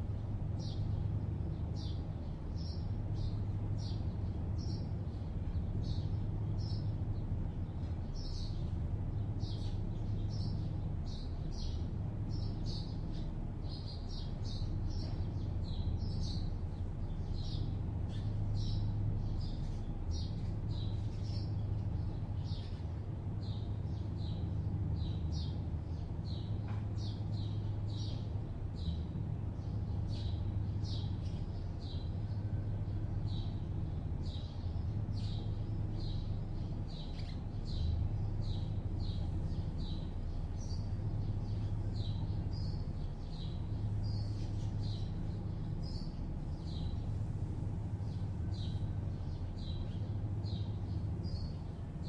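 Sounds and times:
distant city traffic hum: 0:00.0 - 0:52.0
small birds chirping: 0:00.0 - 0:52.0.

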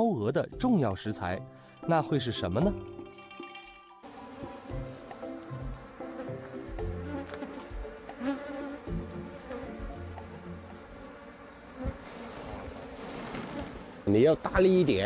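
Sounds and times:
honeybees buzzing: 0:04.0 - 0:15.0.

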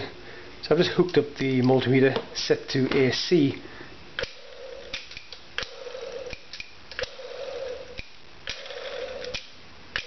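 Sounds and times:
magneto sharp clicks: 0:04.2 - 0:07.2, 0:08.0 - 0:10.0.

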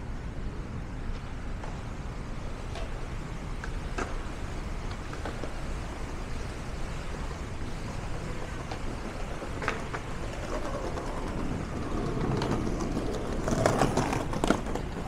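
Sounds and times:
low rumble of traffic: 0:00.0 - 0:15.0.

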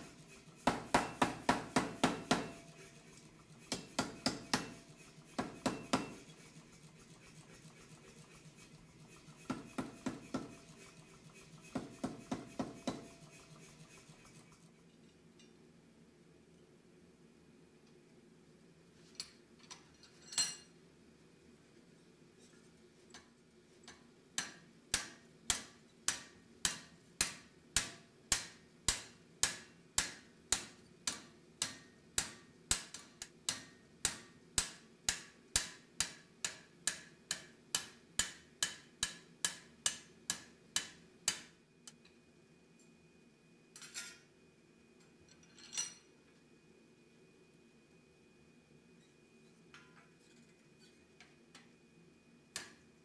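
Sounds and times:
hammer striking hot steel: 0:00.6 - 0:02.8, 0:03.6 - 0:06.3, 0:09.4 - 0:10.6, 0:11.6 - 0:13.2, 0:23.9 - 0:41.6, 0:52.5 - 0:52.8.

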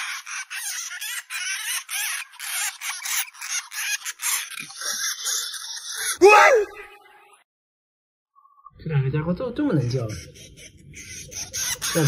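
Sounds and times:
baby hamsters squeaking: 0:00.0 - 0:06.2, 0:09.7 - 0:12.0.

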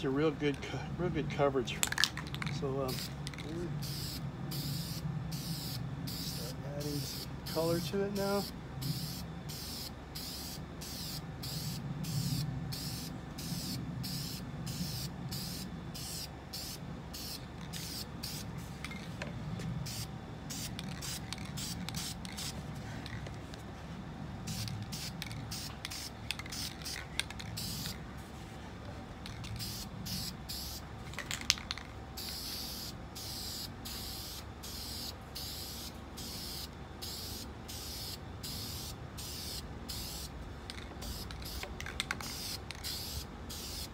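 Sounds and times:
spray paint can hissing: 0:02.3 - 0:07.7, 0:08.4 - 0:18.8, 0:19.8 - 0:23.2, 0:24.4 - 0:28.0, 0:29.2 - 0:30.8, 0:31.6 - 0:43.9.

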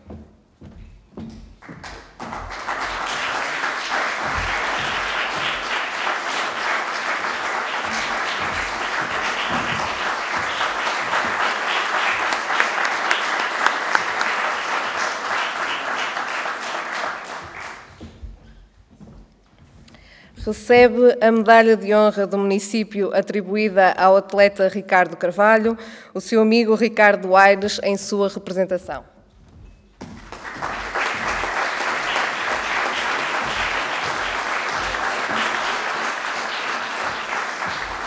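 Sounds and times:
audience applauding: 0:01.6 - 0:18.0, 0:30.0 - 0:38.0.

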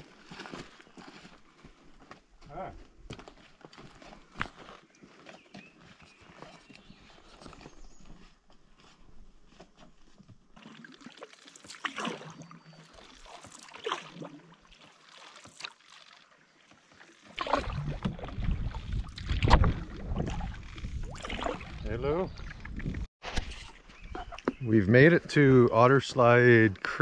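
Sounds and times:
footsteps on dirt trail: 0:00.0 - 0:10.6
paddle swishing through water: 0:10.6 - 0:23.8.

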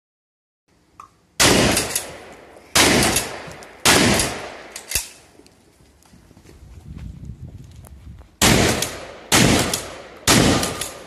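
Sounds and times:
shotgun blasts echoing: 0:01.4 - 0:05.2, 0:08.4 - 0:11.0.

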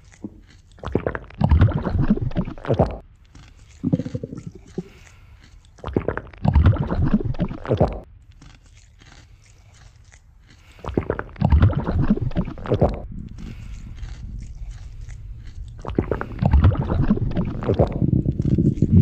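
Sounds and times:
crunching squishing body sounds: 0:00.0 - 0:19.0
low rumble: 0:11.3 - 0:19.0.

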